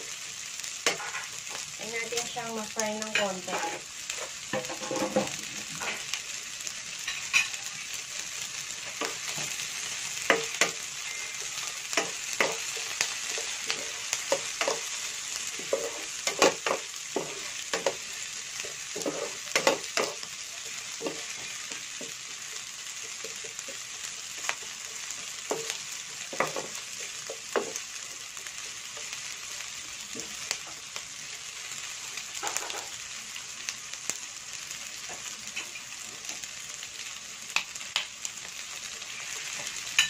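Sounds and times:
vegetables sizzling in oil: 0.0s - 40.0s
wooden spatula scraping pan: 3.4s - 6.0s, 18.6s - 20.1s.

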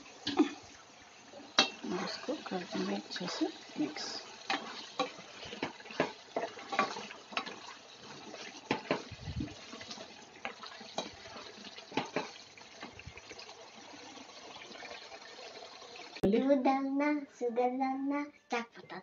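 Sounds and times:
spatula stirring thick curry: 0.3s - 13.0s.

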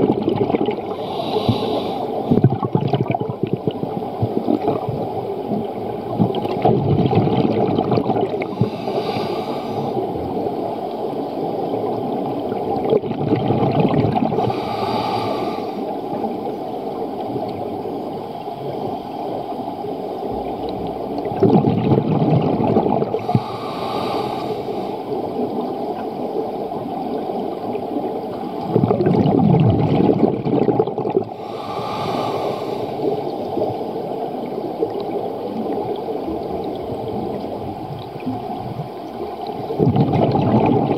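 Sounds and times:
underwater bubbles gurgling: 0.0s - 40.9s
diver breathing through regulator: 0.9s - 2.3s, 8.4s - 10.2s, 14.3s - 15.9s, 23.1s - 25.1s, 31.3s - 33.4s.

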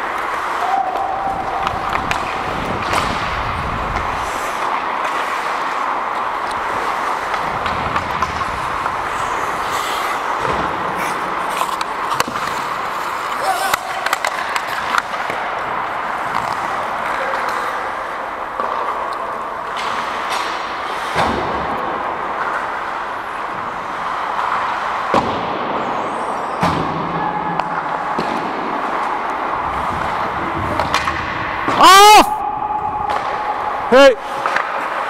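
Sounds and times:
skates scraping on ice: 0.0s - 32.1s, 33.0s - 35.0s
hockey sticks and puck knocking: 0.0s - 32.2s, 33.0s - 35.0s.

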